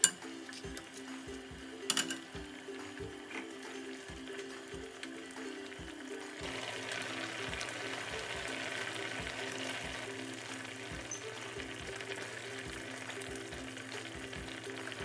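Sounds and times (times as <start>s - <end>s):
background music with a beat: 0.0s - 15.0s
curry sizzling in a frying pan: 0.0s - 15.0s.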